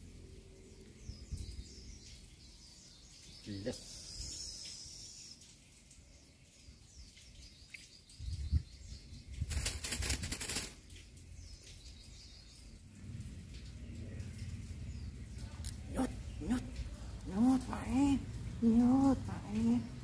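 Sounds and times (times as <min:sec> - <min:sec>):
small birds chirping: 0:00.4 - 0:20.0
wings fluttering and rustling: 0:09.2 - 0:12.0.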